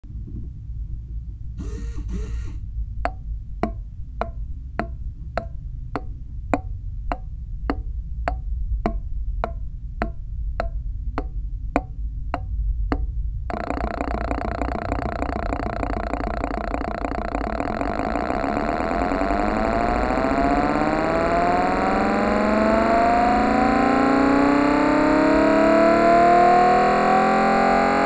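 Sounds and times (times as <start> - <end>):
low hum: 0.0 - 28.0
engine running: 1.6 - 2.7, 13.5 - 28.0.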